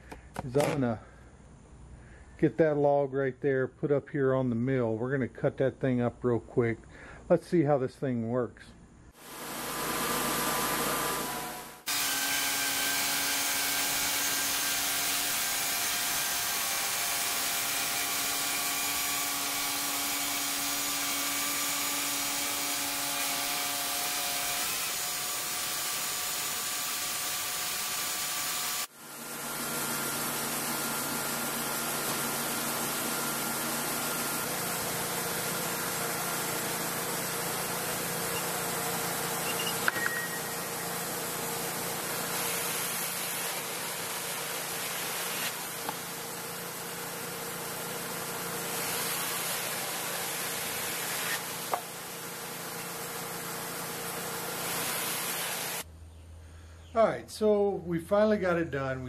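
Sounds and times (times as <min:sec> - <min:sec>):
short click: 0:39.6 - 0:40.4
band saw blade hiss: 0:48.6 - 0:52.0.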